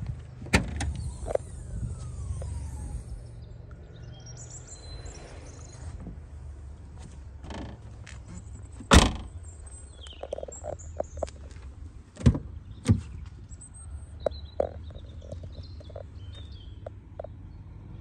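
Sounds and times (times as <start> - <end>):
car tailgate shutting with thud: 8.8 - 9.3
birds chirping faintly: 9.2 - 17.7.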